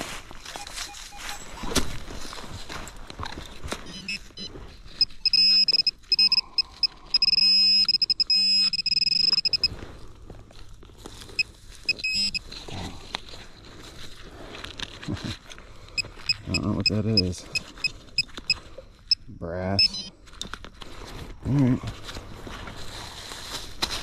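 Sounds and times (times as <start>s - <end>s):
soil and leaves rustling: 0.0s - 24.0s
metal detector buzzing bursts: 5.0s - 9.7s, 11.9s - 12.4s.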